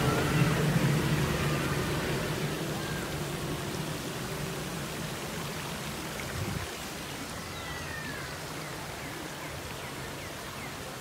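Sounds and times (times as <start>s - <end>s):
low hum: 0.0s - 5.5s
stream water rushing over rocks: 0.0s - 11.0s.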